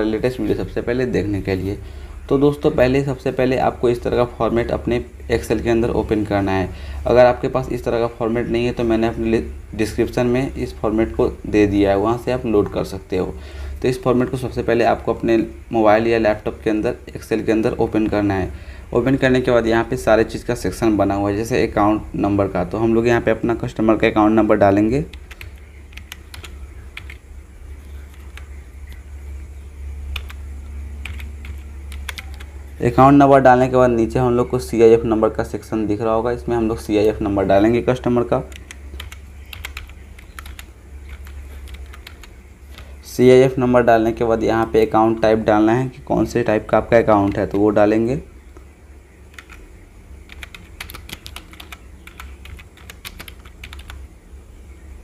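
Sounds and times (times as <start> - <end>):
low steady hum: 0.0 - 55.0
keyboard keys clicking: 25.1 - 27.2, 30.1 - 30.4, 31.0 - 32.5, 38.5 - 42.9, 49.3 - 49.6, 50.3 - 54.0.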